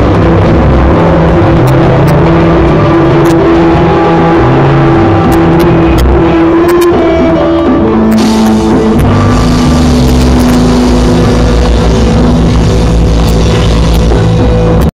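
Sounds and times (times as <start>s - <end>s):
rock band playing loudly: 0.0s - 14.9s
cymbals crashing: 8.1s - 14.7s.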